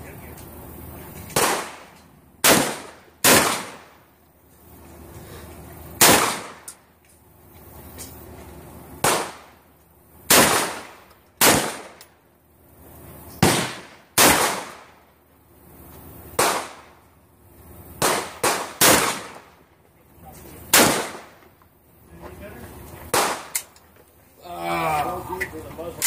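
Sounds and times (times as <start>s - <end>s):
shotgun shots with echo: 1.3s - 4.0s, 6.0s - 6.7s, 9.0s - 9.5s, 10.3s - 12.0s, 13.4s - 15.0s, 16.4s - 17.0s, 18.0s - 19.6s, 20.7s - 21.4s, 23.1s - 23.6s.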